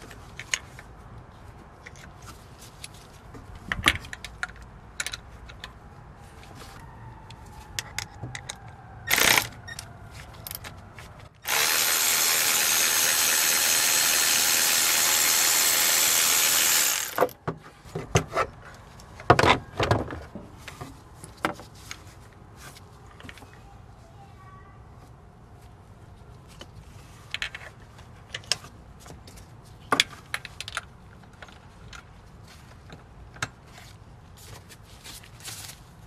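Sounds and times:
cordless ratchet motor running: 11.4 - 17.3.

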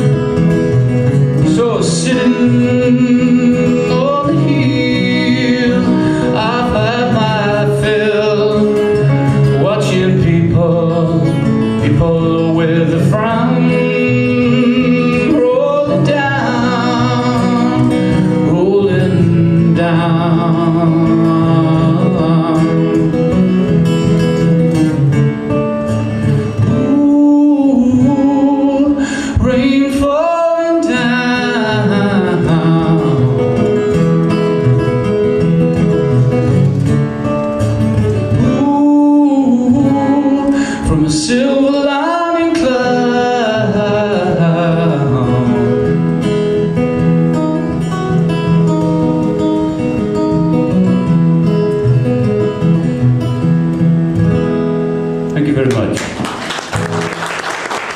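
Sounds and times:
man singing: 0.0 - 23.7, 26.4 - 34.4, 38.0 - 46.8
acoustic guitar: 0.0 - 57.9.

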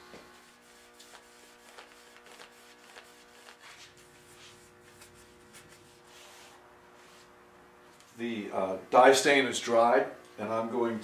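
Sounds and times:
cloth rubbing on wood: 0.4 - 7.4.

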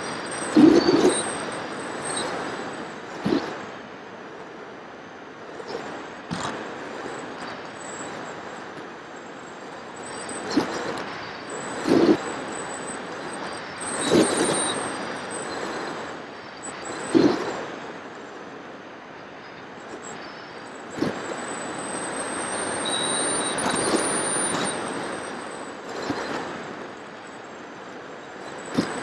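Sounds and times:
electric motor and propeller: 0.0 - 29.0
thin high whine: 0.0 - 29.0.

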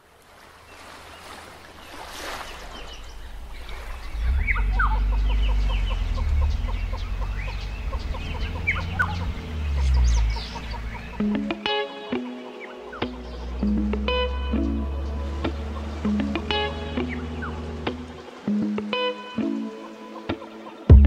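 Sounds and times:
birds chirping: 0.6 - 21.0
low rumble: 3.0 - 11.2.

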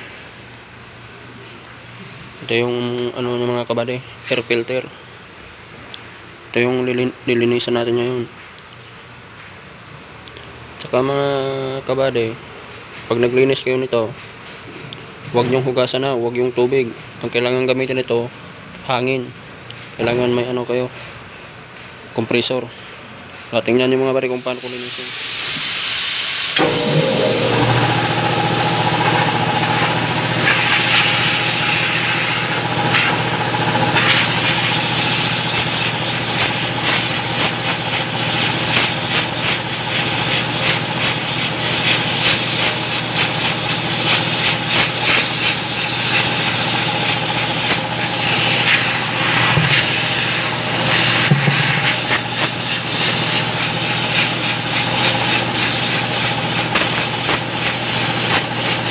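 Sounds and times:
compressed air hissing: 24.4 - 58.9
motor hum: 26.6 - 58.9.

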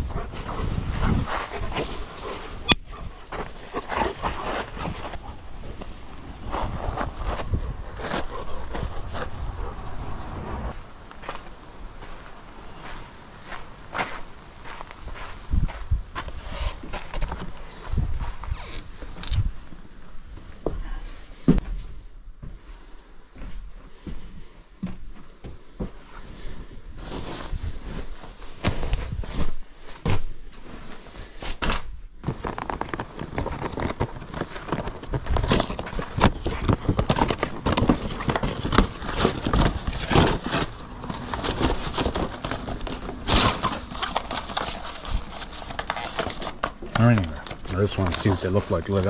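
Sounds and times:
crackling and rustling: 0.0 - 21.6, 25.6 - 49.0
cardboard boxes being handled: 32.3 - 49.0.

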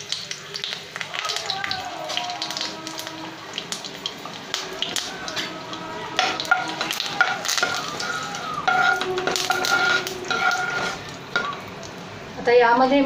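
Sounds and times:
leaves sizzling in hot oil: 0.0 - 12.8
spatula scraping pan: 5.3 - 11.6.

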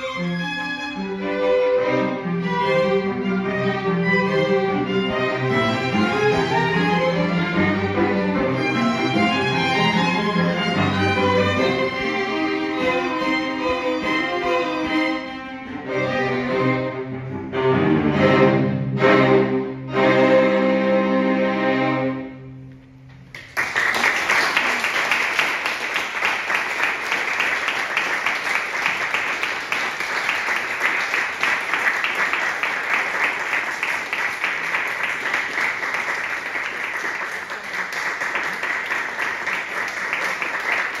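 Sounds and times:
string quartet chord: 0.0 - 22.8
audience applause: 23.3 - 41.0.

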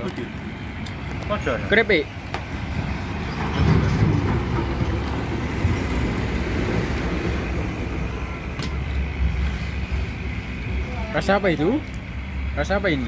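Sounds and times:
lorry diesel engine rumbling: 0.0 - 13.0.

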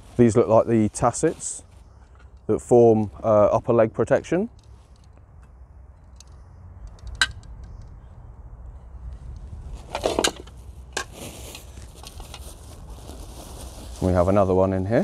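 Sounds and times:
steady low rumble: 0.0 - 11.0
plastic wrapping rustling: 10.0 - 14.8.

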